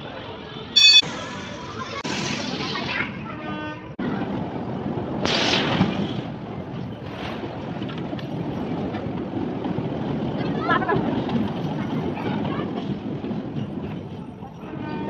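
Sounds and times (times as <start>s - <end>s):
bumper cars rumbling: 0.0s - 15.0s
short horn-like tone: 0.8s - 1.1s.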